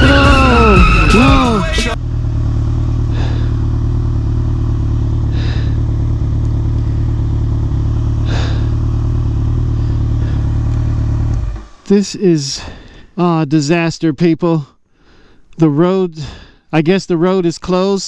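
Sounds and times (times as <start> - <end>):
motorcycle engine at low revs: 0.0 - 12.1.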